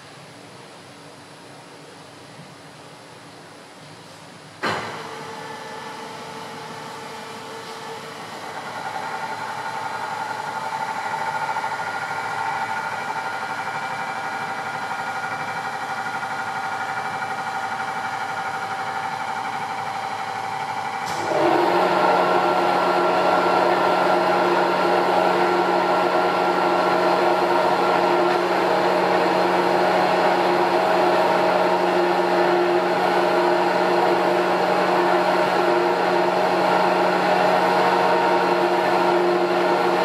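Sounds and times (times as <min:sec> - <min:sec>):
high motor whine: 0:20.8 - 0:40.0
electric mixer motor humming: 0:21.3 - 0:40.0.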